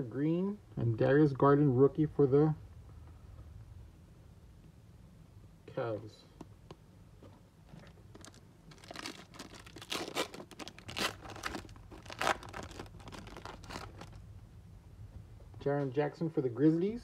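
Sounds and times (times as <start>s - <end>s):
wrappers crinkling and tearing: 7.8s - 14.2s.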